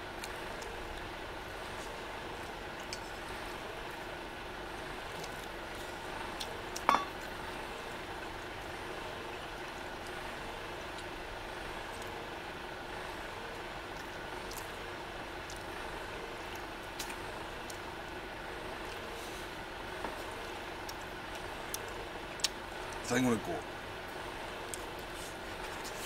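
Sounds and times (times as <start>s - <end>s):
steady background hiss: 0.0s - 26.0s
metallic clink of tableware: 6.9s - 7.2s.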